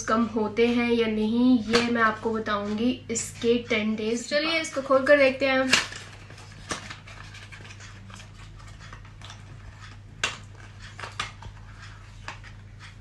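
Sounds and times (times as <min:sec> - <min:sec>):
steady low hum: 0:00.0 - 0:13.0
cardboard rustling: 0:05.7 - 0:12.7.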